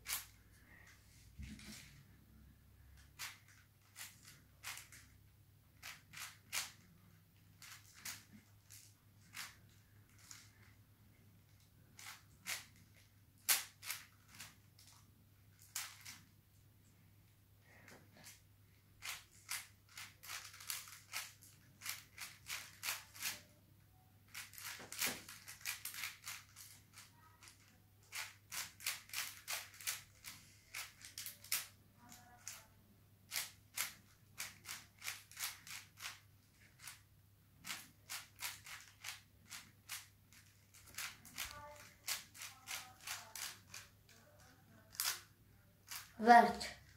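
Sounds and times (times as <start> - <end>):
plastic puzzle cube clicking: 3.2 - 5.1, 5.8 - 6.9, 7.6 - 10.6, 12.0 - 15.0, 15.6 - 16.2, 19.0 - 23.5, 24.3 - 32.6, 33.3 - 37.0, 37.6 - 44.2, 44.8 - 46.1.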